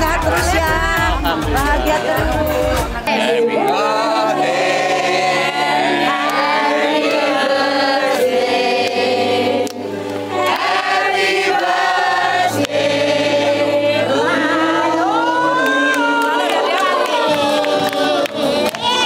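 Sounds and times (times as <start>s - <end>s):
voices singing together: 0.0s - 19.0s.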